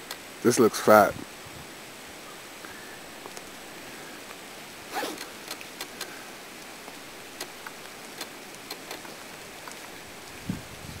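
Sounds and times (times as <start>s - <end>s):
rain hissing in woods: 0.0s - 11.0s
drops ticking close by: 5.2s - 9.9s.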